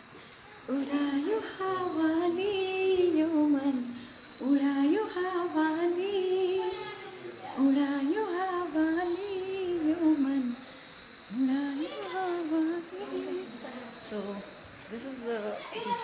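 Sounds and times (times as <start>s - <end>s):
high insect drone: 0.0s - 16.0s
woman singing unaccompanied: 0.6s - 16.0s.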